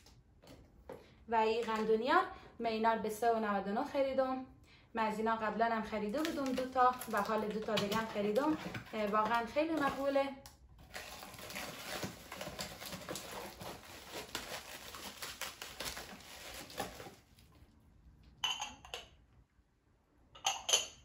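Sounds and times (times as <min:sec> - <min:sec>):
plastic wrapping crinkling: 0:06.1 - 0:10.2, 0:10.8 - 0:17.6
glass lid clinks: 0:18.4 - 0:19.1.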